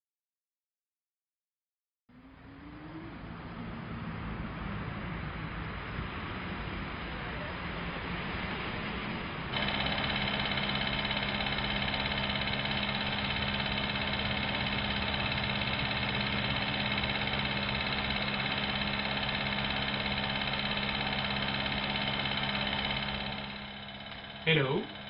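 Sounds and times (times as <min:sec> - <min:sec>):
water pump droning: 0:09.5 - 0:25.0.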